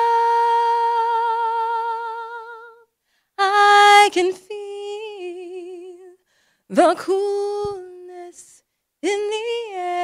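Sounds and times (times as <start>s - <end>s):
woman singing unaccompanied: 0.0s - 10.0s.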